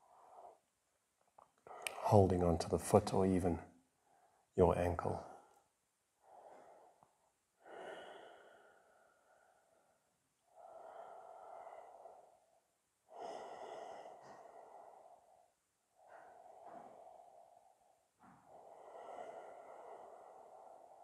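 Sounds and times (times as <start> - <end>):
slow throat breathing: 5.2 - 21.0.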